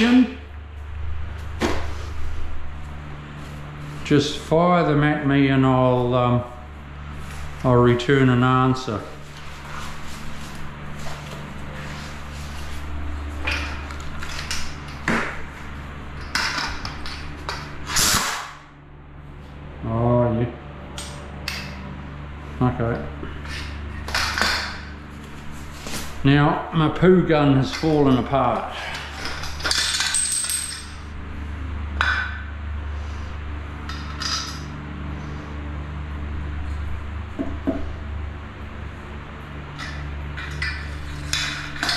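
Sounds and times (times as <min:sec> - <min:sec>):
low steady hum: 0:00.0 - 0:41.9
gloves rustling and scraping: 0:06.8 - 0:07.6, 0:09.1 - 0:14.4
metal gun parts clinking and rattling: 0:29.2 - 0:31.0.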